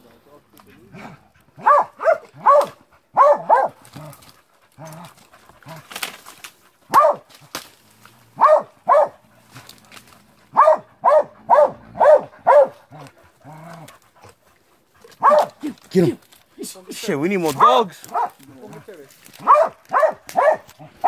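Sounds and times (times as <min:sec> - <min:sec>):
dog barking: 0:01.0 - 0:03.8, 0:06.9 - 0:07.3, 0:08.4 - 0:09.2, 0:10.5 - 0:13.1, 0:15.1 - 0:15.6, 0:17.6 - 0:18.7, 0:19.4 - 0:20.8.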